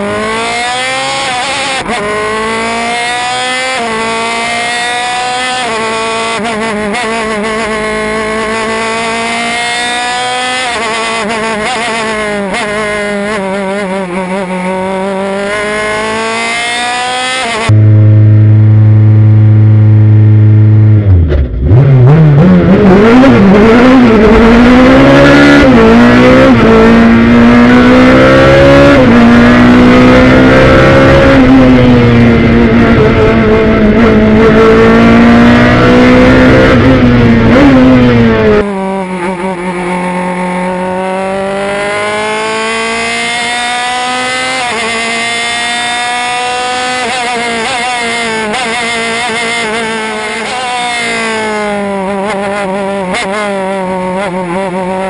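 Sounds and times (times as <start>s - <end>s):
quieter engine revving: 0.0s - 55.0s
race car engine revving: 0.0s - 55.0s.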